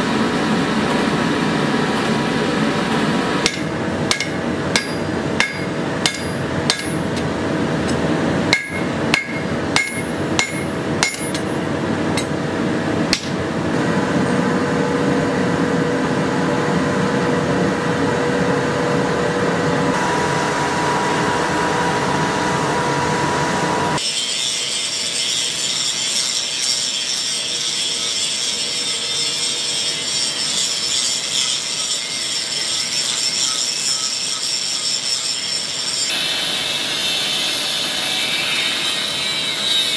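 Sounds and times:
hammer striking steel on anvil: 0:03.4 - 0:12.4, 0:13.1 - 0:13.4
high-pitched mechanical whir: 0:19.8 - 0:39.9.

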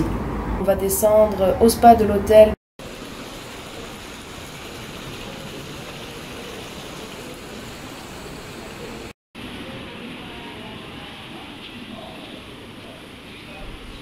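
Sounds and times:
rushing water and air: 0:02.8 - 0:09.1.

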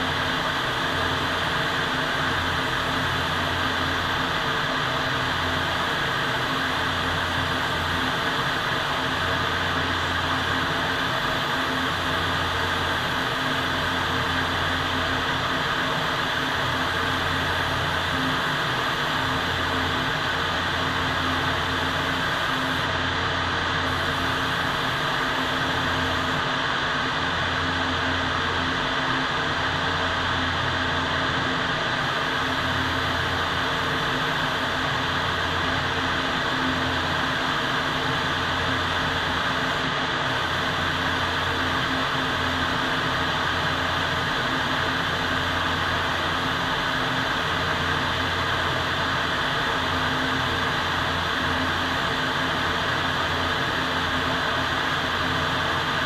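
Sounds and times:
ventilation rushing air: 0:00.0 - 0:27.4.

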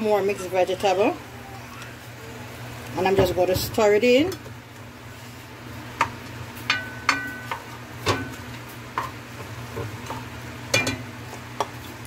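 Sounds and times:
metal pot ringing: 0:06.7 - 0:08.4.

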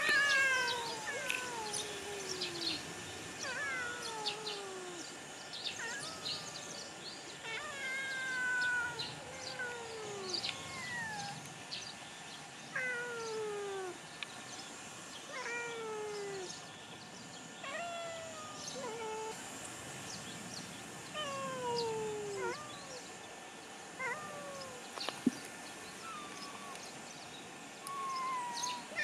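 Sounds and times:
cat meowing: 0:21.2 - 0:23.0.

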